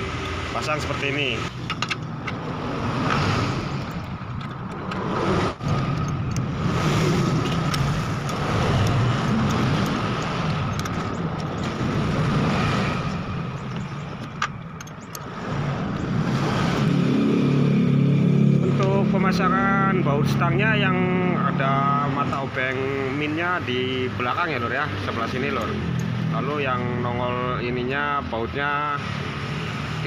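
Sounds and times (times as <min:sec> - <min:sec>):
vehicle engine rumble: 0:00.0 - 0:30.0
metal parts clicking: 0:01.6 - 0:02.4, 0:03.8 - 0:06.6, 0:07.2 - 0:11.8, 0:13.5 - 0:15.3.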